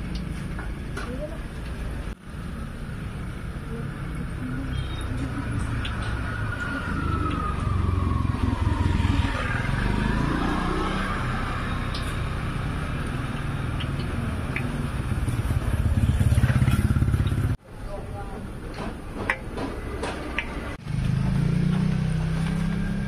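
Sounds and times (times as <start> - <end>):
vehicle engine rumble: 0.0 - 17.6.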